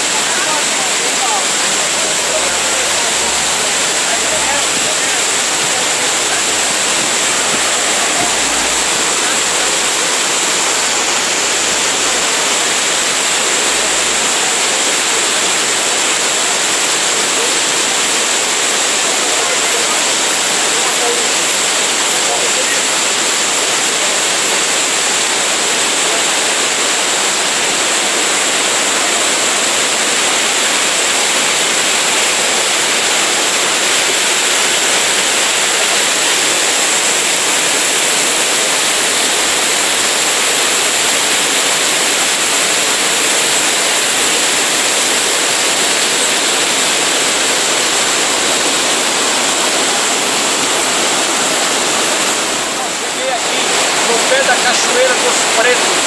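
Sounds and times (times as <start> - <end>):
water rushing over boulders: 0.0 - 56.0.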